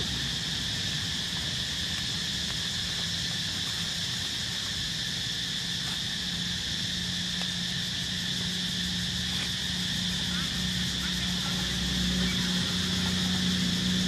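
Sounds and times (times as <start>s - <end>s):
insects chorus drone: 0.0s - 14.0s
faint low hum: 9.2s - 14.0s.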